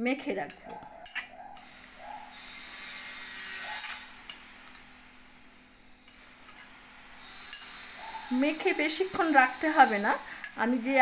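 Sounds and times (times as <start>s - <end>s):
spoon scraping in ceramic bowl: 0.4s - 2.0s, 3.2s - 5.0s, 6.0s - 10.6s.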